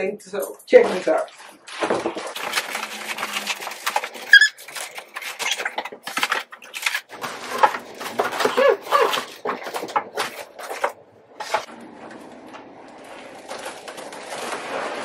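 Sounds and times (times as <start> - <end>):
cardboard rustling and crackling: 0.9 - 15.0
short squeak: 4.3 - 4.6.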